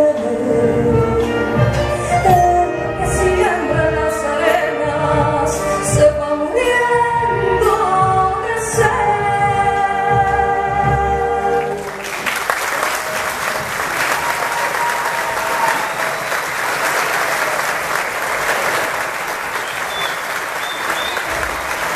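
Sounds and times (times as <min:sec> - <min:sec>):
audience applauding: 0:11.5 - 0:21.9.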